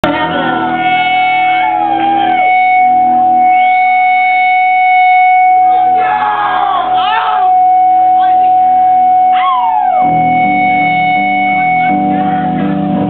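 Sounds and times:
rock band playing: 7.5s - 13.0s.

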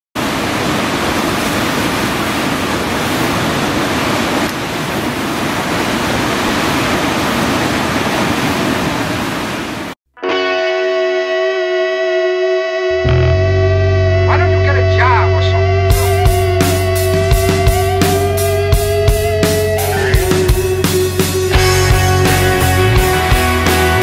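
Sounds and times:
waves breaking: 0.2s - 10.0s, 16.0s - 24.0s.

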